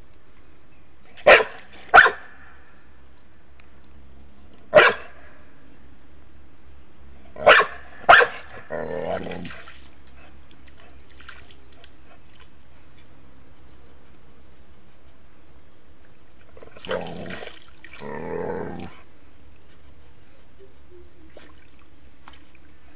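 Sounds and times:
puppy barking: 1.3s - 2.2s, 4.7s - 5.1s, 7.4s - 8.5s
drawn-out dog call: 7.4s - 9.1s.

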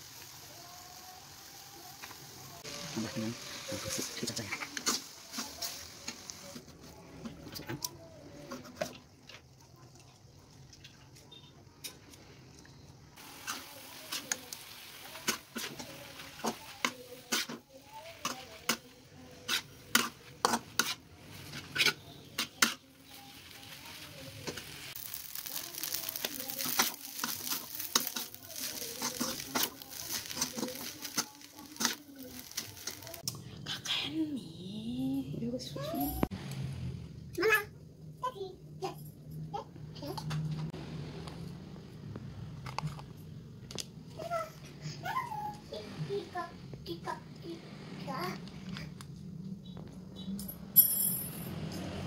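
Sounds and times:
faint sizzle: 0.0s - 49.9s
metal spatula scraping wok: 18.2s - 33.2s.

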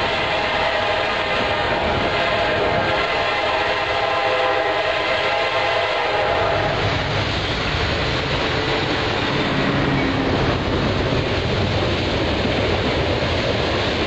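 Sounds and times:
locomotive horn chord: 0.0s - 6.8s
freight train rumbling and clattering: 0.0s - 14.0s
diesel engine: 6.7s - 13.1s.

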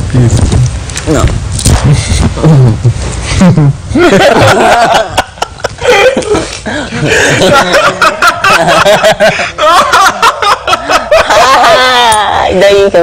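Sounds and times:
man laughing: 3.4s - 12.1s
people laughing: 3.4s - 12.2s.

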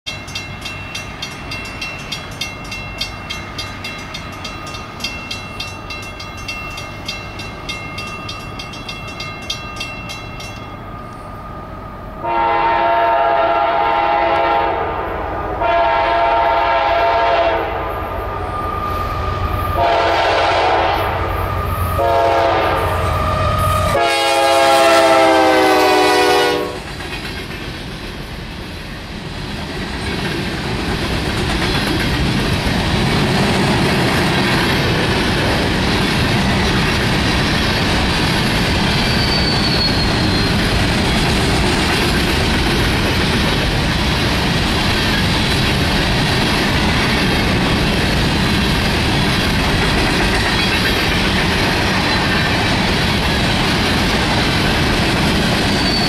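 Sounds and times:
rail cars rumbling by: 0.1s - 56.0s
locomotive air horn blasts: 12.2s - 17.8s, 19.7s - 21.2s, 22.0s - 26.8s.

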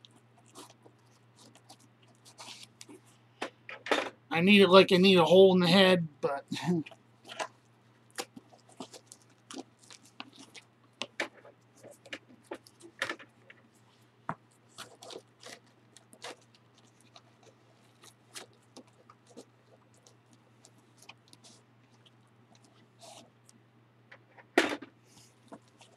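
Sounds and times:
book pages crinkling: 0.0s - 3.2s, 6.9s - 23.6s, 25.1s - 25.9s
low electrical hum: 0.0s - 25.9s.

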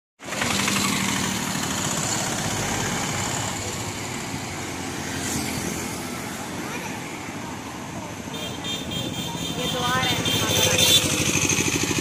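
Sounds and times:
small vehicle engine running: 0.2s - 6.0s, 10.0s - 12.0s
road traffic noise: 0.2s - 12.0s.

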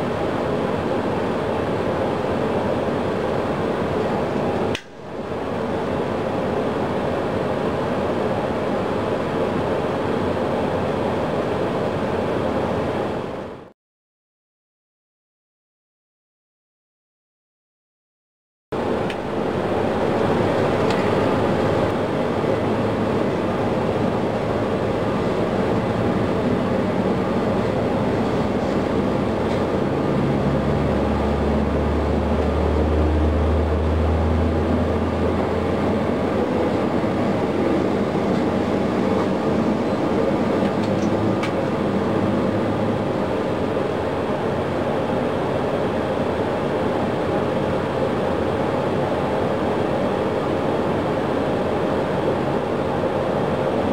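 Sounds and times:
jet engine spooling up: 18.8s - 53.9s.

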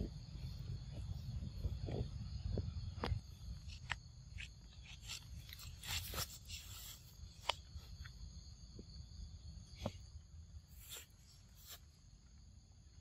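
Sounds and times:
insects droning: 0.0s - 13.0s
rustling in leaf litter: 5.0s - 7.4s.

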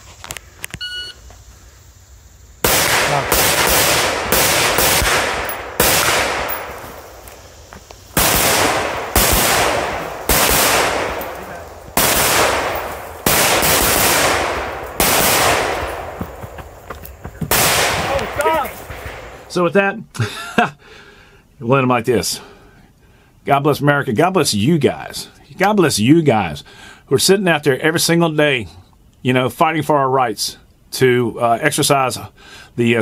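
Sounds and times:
short beep: 0.8s - 1.2s
rifle shots echoing: 2.6s - 16.8s, 17.5s - 19.5s.

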